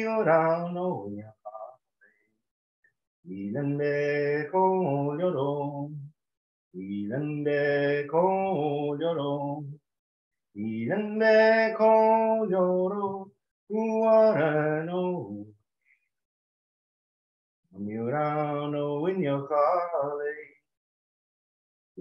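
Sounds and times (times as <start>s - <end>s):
man singing unaccompanied: 0.0s - 1.8s, 3.2s - 6.1s, 6.8s - 9.8s, 10.5s - 15.5s, 17.7s - 20.6s.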